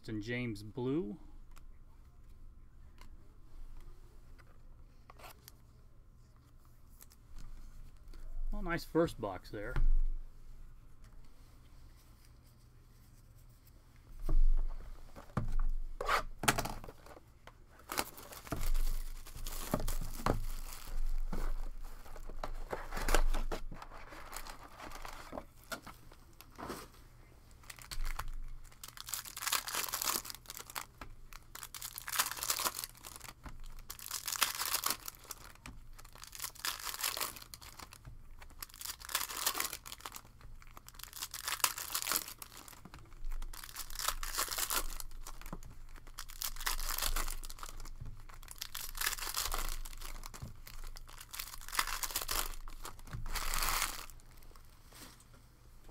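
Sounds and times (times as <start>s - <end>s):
plastic wrapping tearing and crinkling: 17.8s - 25.8s, 27.6s - 54.6s.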